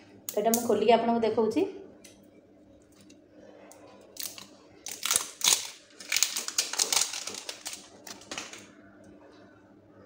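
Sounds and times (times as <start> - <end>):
plastic wrap crinkling: 4.1 - 8.7.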